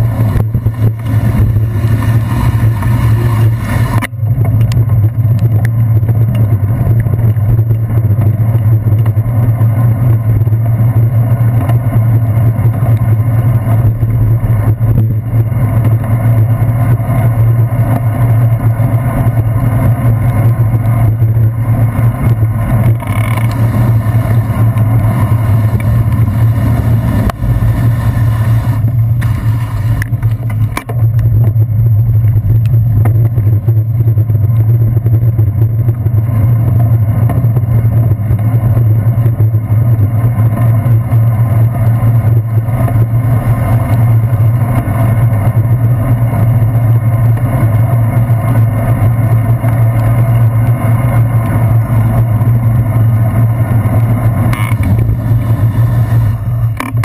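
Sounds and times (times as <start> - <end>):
bicycle road rumble on wet pavement: 0.0 - 57.0
low steady drone: 0.0 - 57.0.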